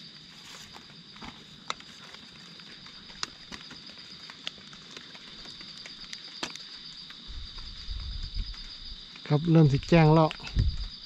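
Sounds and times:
footsteps on dry leaves: 0:00.0 - 0:09.0
high insect trill: 0:00.0 - 0:11.0
twigs snapping: 0:00.4 - 0:09.2.

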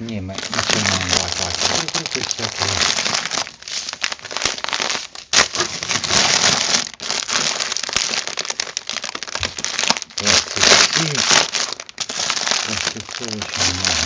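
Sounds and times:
plastic bags crinkling: 0:00.3 - 0:14.0.

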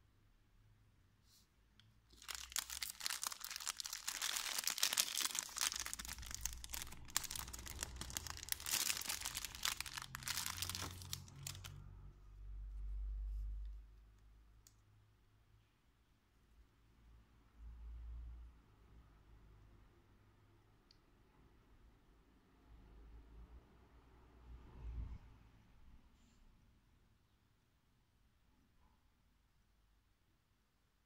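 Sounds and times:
plastic sleeve crinkling: 0:02.1 - 0:11.8.

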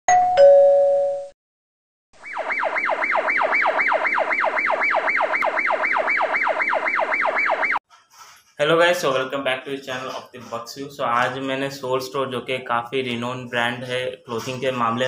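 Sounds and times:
siren yelp: 0:02.2 - 0:07.8.

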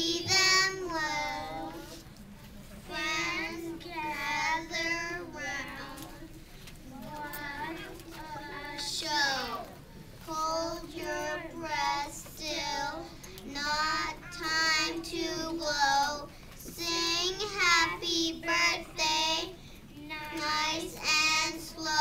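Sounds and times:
girls singing into microphone: 0:00.0 - 0:02.0.

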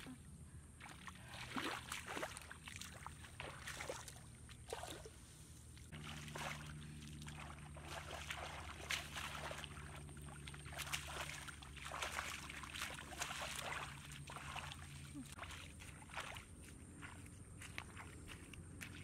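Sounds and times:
hands splashing in muddy water: 0:00.8 - 0:05.2, 0:05.9 - 0:19.0
sharp water slaps: 0:00.8 - 0:05.2, 0:06.0 - 0:16.4.

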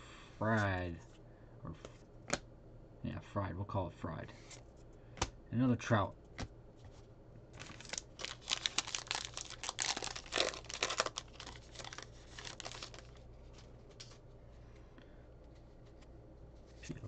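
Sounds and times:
foil wrapper crinkling and tearing: 0:07.6 - 0:13.3.

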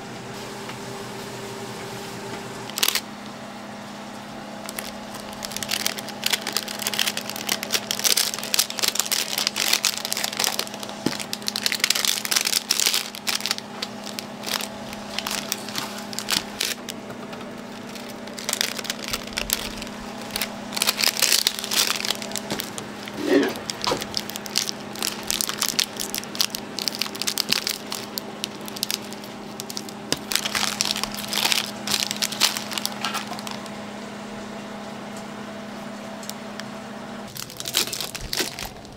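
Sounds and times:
steady low hum: 0:00.0 - 0:38.9
crinkling and crackling: 0:02.7 - 0:03.1, 0:04.6 - 0:33.8, 0:37.2 - 0:38.9.

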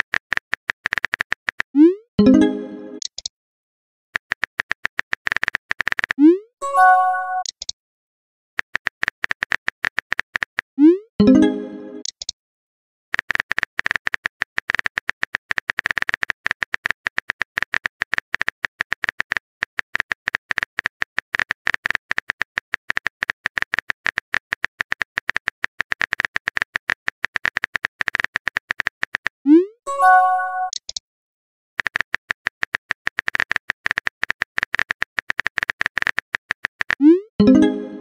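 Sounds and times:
phone keyboard typing clicks: 0:00.0 - 0:03.3, 0:08.6 - 0:10.7, 0:13.2 - 0:29.4, 0:30.6 - 0:31.0, 0:31.8 - 0:38.0
short message chime: 0:29.9 - 0:30.7.

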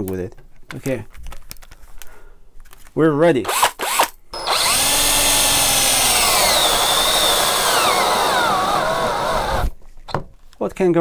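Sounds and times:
cordless drill boring wood: 0:03.5 - 0:09.7.

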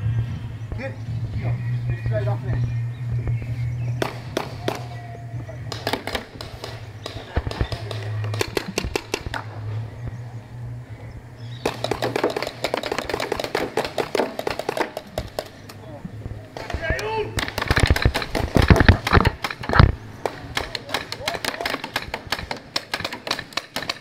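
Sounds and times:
paintball markers firing: 0:04.0 - 0:05.0, 0:05.6 - 0:09.6, 0:11.6 - 0:15.8, 0:16.6 - 0:24.0.

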